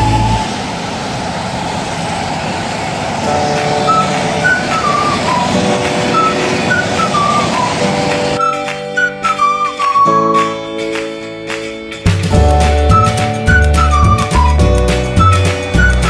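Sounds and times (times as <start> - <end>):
freight train rolling past: 0.0 - 10.5, 12.3 - 16.0
background music: 3.2 - 16.0.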